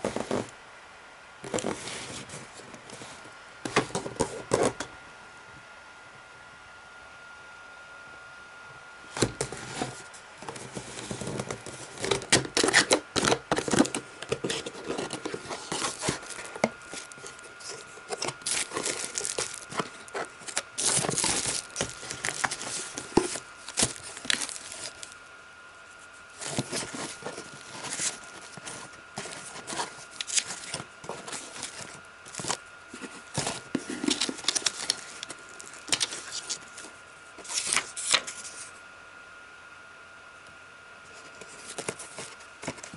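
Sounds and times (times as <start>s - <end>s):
cardboard scraping and rustling: 0.0s - 0.5s, 1.4s - 4.9s, 9.1s - 25.2s, 25.9s - 38.8s, 41.1s - 42.9s
bubble wrap crinkling: 11.0s - 25.3s, 26.0s - 38.7s.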